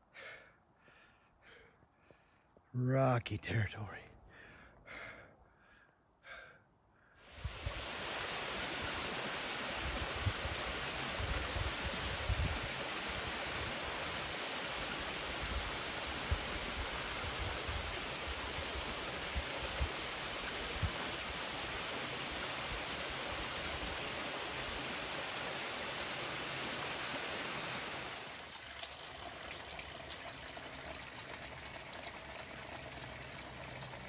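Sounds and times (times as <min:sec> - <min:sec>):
rushing mountain creek: 0:07.3 - 0:34.0
wind buffeting microphone: 0:09.8 - 0:12.8.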